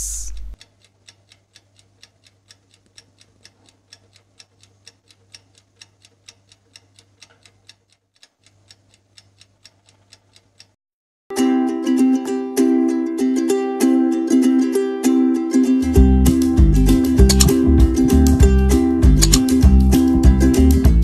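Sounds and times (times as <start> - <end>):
clock ticking: 0.4 - 10.8, 16.3 - 20.6
ukulele music: 11.3 - 21.0.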